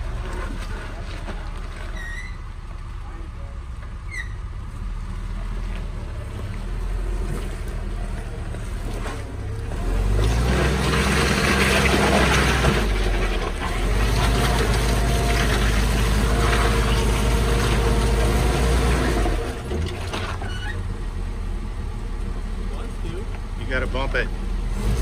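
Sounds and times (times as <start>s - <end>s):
jeep engine revving: 4.9s - 19.7s, 20.9s - 25.0s.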